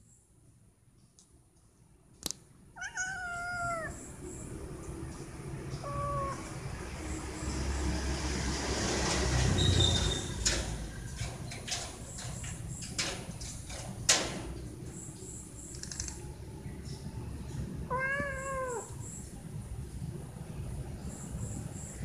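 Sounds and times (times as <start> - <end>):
cat meowing: 2.8 - 4.0, 5.7 - 6.6, 17.9 - 19.0
cat claws tapping on mesh screen: 10.4 - 14.6.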